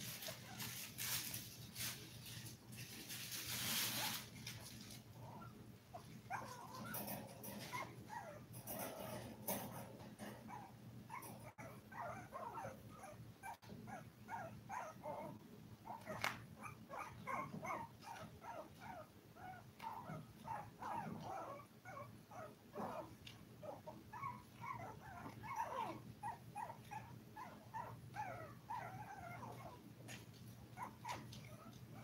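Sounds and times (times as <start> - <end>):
puppies crying: 15.9 - 29.8.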